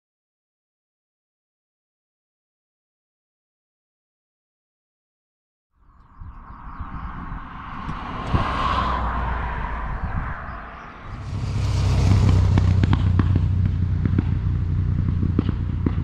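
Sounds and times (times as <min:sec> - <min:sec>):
sharp engine crackles: 0:11.0 - 0:16.0
motorcycle engine running: 0:11.1 - 0:16.0.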